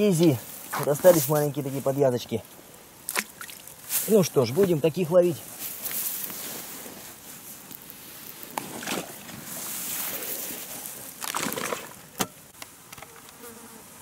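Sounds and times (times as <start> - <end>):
rustling handling noises: 0.0 - 2.6, 3.2 - 12.1
water sloshing and splashing: 3.1 - 3.9, 8.6 - 9.5, 11.2 - 12.0.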